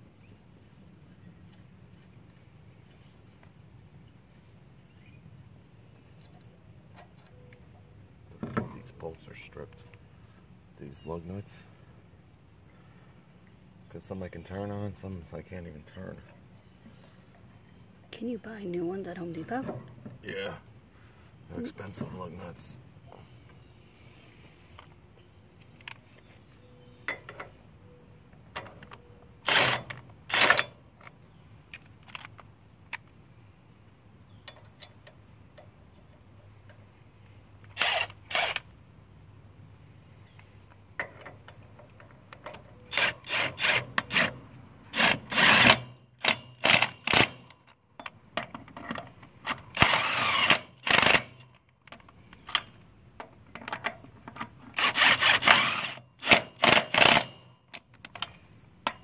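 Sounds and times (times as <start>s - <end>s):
impact wrench bursts: 37.7s - 38.6s, 42.9s - 47.5s, 49.7s - 51.4s, 54.7s - 57.5s.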